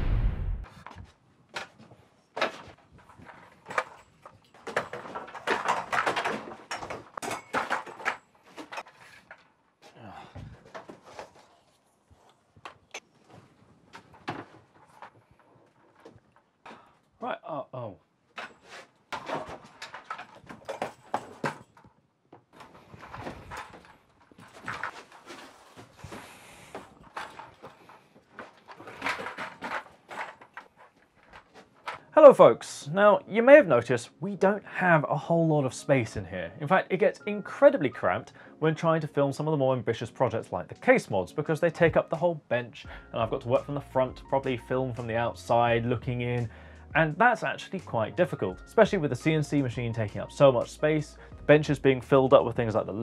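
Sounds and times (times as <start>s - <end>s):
light stand rustling and clattering: 0.7s - 17.2s, 18.3s - 32.2s
tripod stand knocks and rattles: 26.8s - 32.0s.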